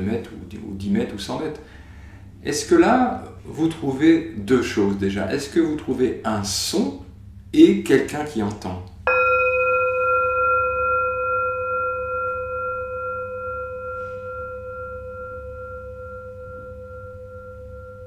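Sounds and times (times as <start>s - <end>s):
bell ringing: 9.1s - 18.0s.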